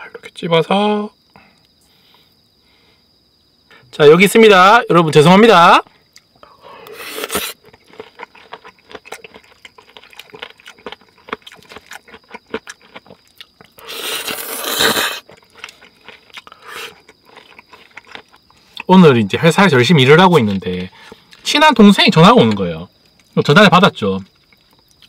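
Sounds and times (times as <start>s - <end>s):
person chewing: 6.1s - 18.9s.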